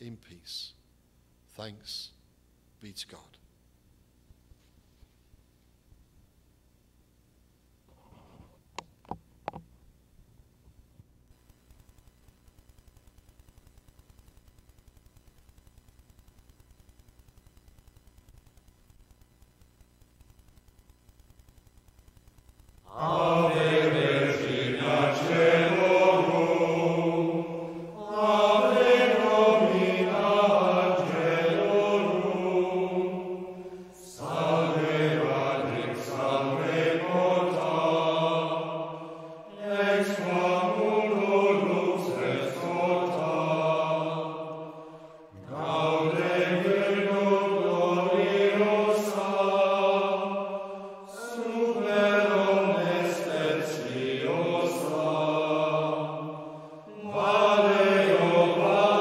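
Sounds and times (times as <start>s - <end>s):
slow sung chant: 22.8s - 59.0s.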